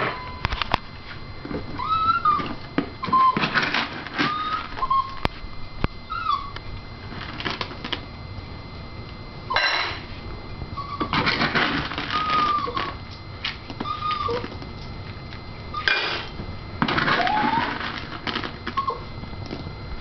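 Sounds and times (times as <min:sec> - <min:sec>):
dog whining in high squeaks: 0:01.8 - 0:03.6, 0:04.2 - 0:05.2, 0:06.1 - 0:06.6, 0:10.8 - 0:11.2, 0:11.9 - 0:13.0, 0:13.8 - 0:14.6, 0:15.7 - 0:16.3, 0:17.0 - 0:18.0, 0:18.7 - 0:19.1.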